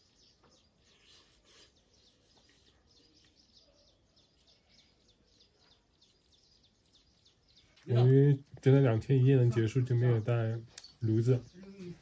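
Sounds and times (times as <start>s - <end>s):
faint high bird chirps: 0.0s - 8.5s.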